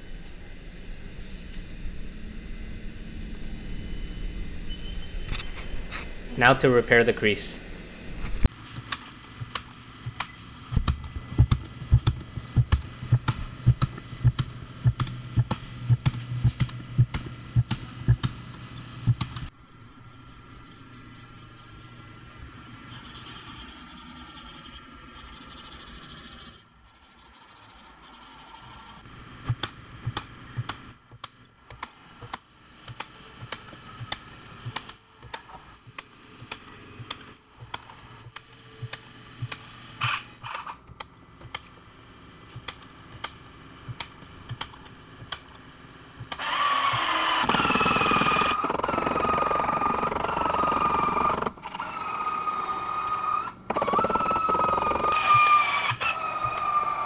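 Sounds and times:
power tool whining: 46.3 - 57.0.

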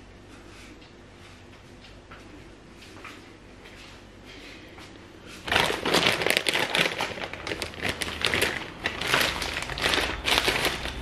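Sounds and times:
plastic packaging crinkling: 5.4 - 11.0.

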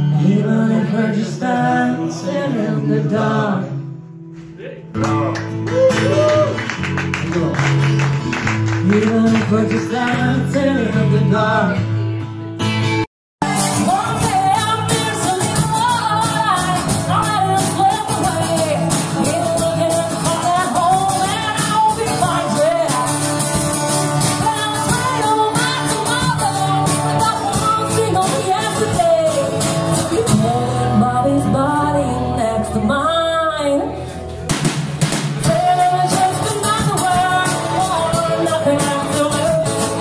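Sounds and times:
strummed acoustic guitar: 0.0 - 32.8, 33.9 - 40.0
person singing: 8.8 - 11.9
drum kit beat: 34.4 - 40.0.

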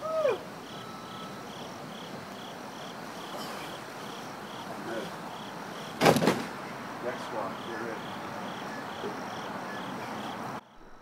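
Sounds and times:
crickets chirping: 0.0 - 11.0
loud thud: 6.0 - 6.6.

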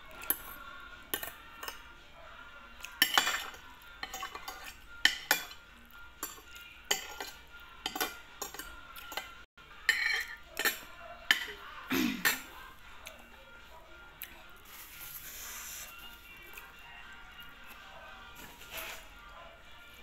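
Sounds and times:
cutlery clinking on a plate: 0.1 - 1.9, 2.9 - 5.6, 6.2 - 12.5.

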